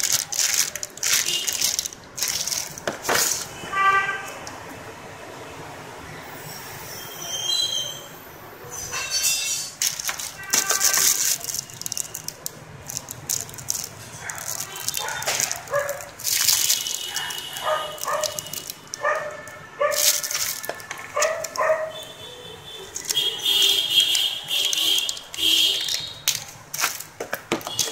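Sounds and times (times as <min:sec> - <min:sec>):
plastic packaging crinkling: 0:00.0 - 0:03.6, 0:09.7 - 0:22.1, 0:22.7 - 0:27.9.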